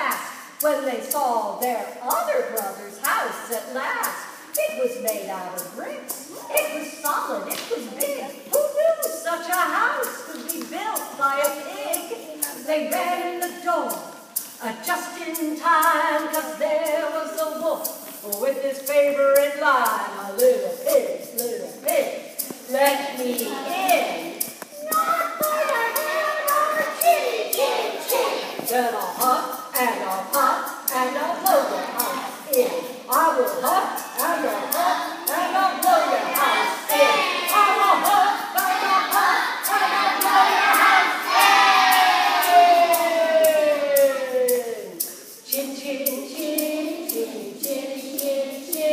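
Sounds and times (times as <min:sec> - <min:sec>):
woman singing: 0:00.0 - 0:14.0, 0:14.6 - 0:24.5, 0:26.0 - 0:39.8, 0:42.3 - 0:48.9
hands clapping a beat: 0:07.4 - 0:08.1, 0:10.2 - 0:10.8, 0:22.4 - 0:28.7.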